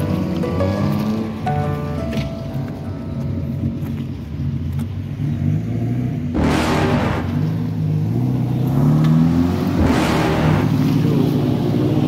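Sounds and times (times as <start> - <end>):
off-road engine revving: 4.4 - 12.0
burst of rushing noise: 6.4 - 7.6.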